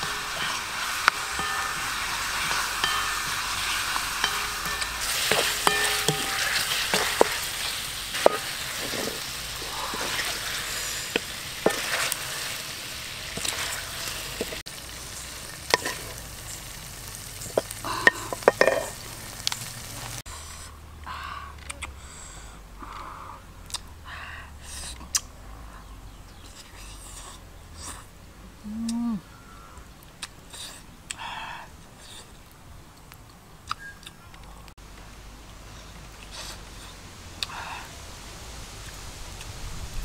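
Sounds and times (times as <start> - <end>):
spatula scraping and knocking pan: 0.0 - 12.6, 15.7 - 16.2, 17.5 - 19.0
eggs sizzling in a wok: 0.0 - 20.7.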